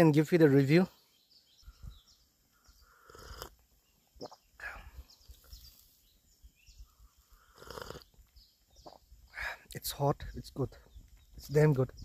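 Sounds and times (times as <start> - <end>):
small birds chirping: 0.0 - 12.0
person slurping soup: 2.9 - 3.6, 7.4 - 8.1
mouth clicks: 4.2 - 4.6.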